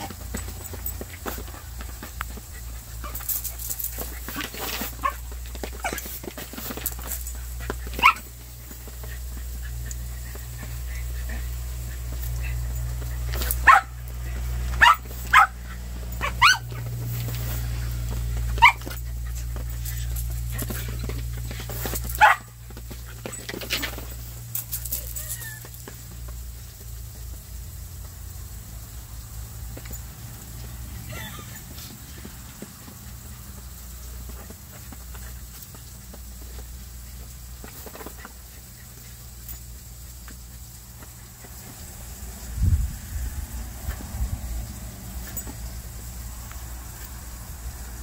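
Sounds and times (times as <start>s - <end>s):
broom bristles scraping a mat: 0.0s - 25.7s
dog yipping and whining: 7.9s - 8.2s, 12.4s - 14.0s, 16.2s - 16.8s, 18.5s - 19.0s, 25.0s - 25.8s
dog barking: 8.0s - 8.2s, 13.6s - 14.0s, 14.8s - 15.6s, 16.2s - 16.8s, 22.2s - 22.5s.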